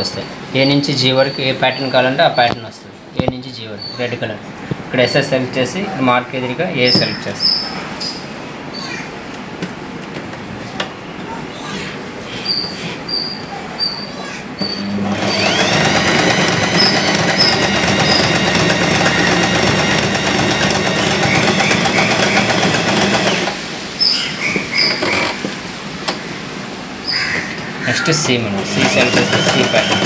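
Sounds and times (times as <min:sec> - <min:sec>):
sewing machine motor whining: 0:14.7 - 0:23.6, 0:28.2 - 0:30.0.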